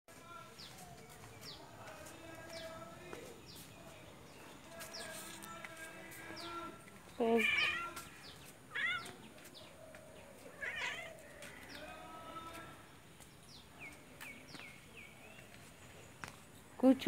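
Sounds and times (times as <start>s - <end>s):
cats meowing: 7.3s - 8.1s, 8.7s - 9.2s, 10.5s - 11.3s.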